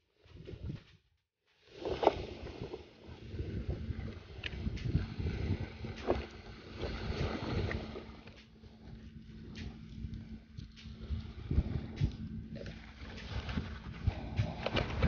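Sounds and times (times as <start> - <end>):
wind buffeting microphone: 0.2 - 0.9, 1.7 - 15.0
faint steady hum: 2.8 - 15.0
microphone handling clicks and knocks: 11.5 - 15.0.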